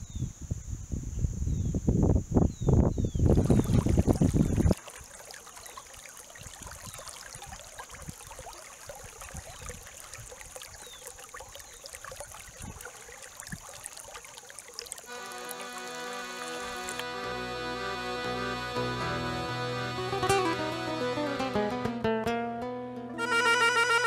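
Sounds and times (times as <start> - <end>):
water trickling over gravel: 3.3 - 17.0.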